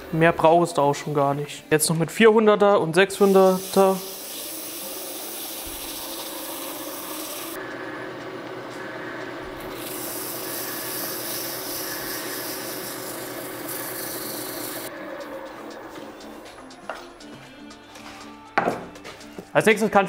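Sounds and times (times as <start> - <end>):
sandpaper hissing on wood: 3.2 - 7.6, 9.8 - 14.9
lathe humming: 3.4 - 17.0.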